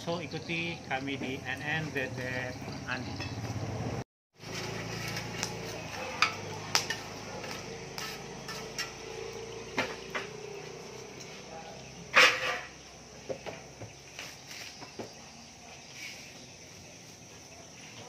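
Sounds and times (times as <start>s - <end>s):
dishes and utensils clinking: 6.0s - 7.6s, 12.1s - 12.8s.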